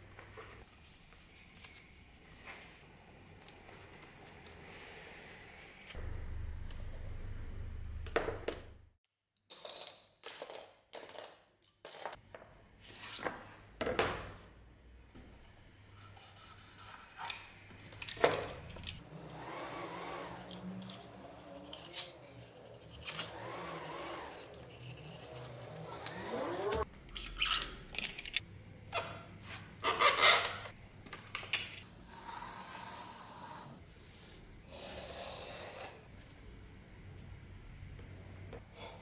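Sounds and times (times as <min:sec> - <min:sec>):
knife scraping leather: 0:19.0 - 0:26.8.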